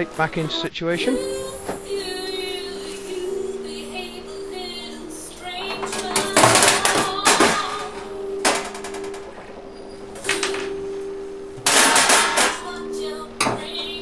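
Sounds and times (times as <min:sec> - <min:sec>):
metal plate clattering against oven: 0:11.6 - 0:12.7.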